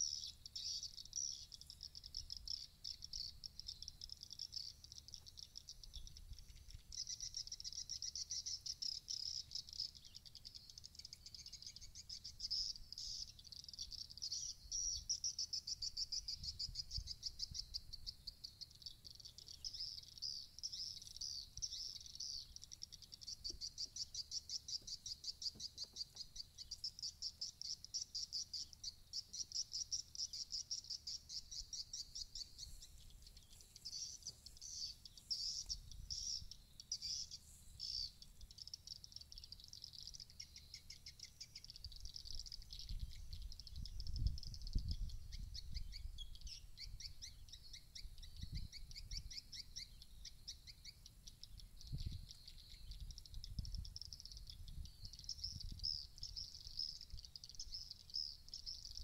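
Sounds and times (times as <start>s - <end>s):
swiftlet twittering chirps: 0.0s - 59.0s
wind rumble on microphone: 16.2s - 17.9s, 41.9s - 47.2s, 48.0s - 49.4s, 51.7s - 57.3s.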